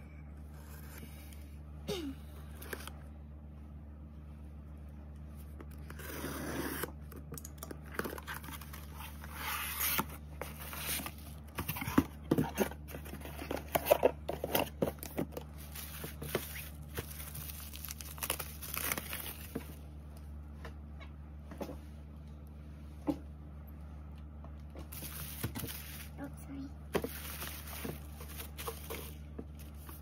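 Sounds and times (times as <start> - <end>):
plastic wrap crinkling: 15.2 - 19.8, 27.0 - 30.0
packing tape tearing: 15.7 - 19.6.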